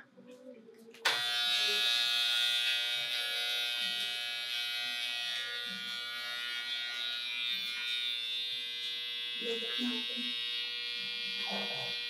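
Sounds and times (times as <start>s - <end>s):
electric hair clippers running: 1.1s - 12.0s.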